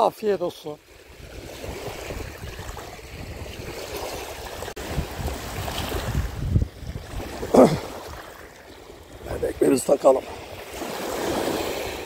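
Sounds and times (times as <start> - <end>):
small waves lapping on pebbles: 0.7 - 12.0
wind gusting on microphone: 1.0 - 8.4.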